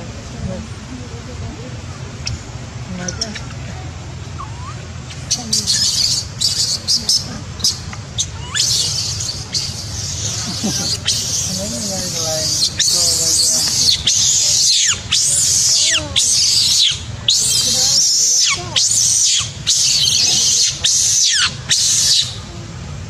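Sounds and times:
baby monkey screaming: 4.4s - 22.4s.

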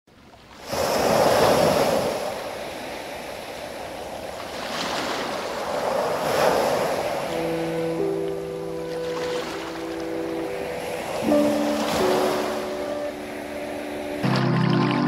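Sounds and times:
ocean waves breaking on beach: 0.1s - 15.0s
soft music tones: 7.0s - 15.0s.

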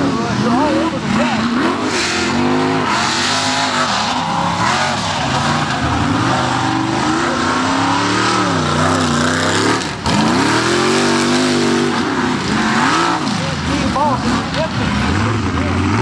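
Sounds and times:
truck engines revving hard: 0.0s - 16.0s.

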